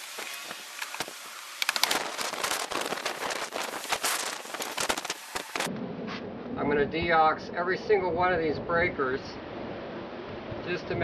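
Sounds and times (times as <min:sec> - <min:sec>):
circuit breaker clicking and crackling: 0:00.0 - 0:05.7.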